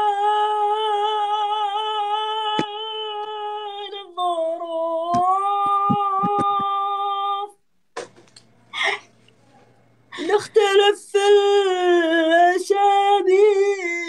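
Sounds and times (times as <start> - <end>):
man singing unaccompanied: 0.0 - 7.6, 10.3 - 14.0.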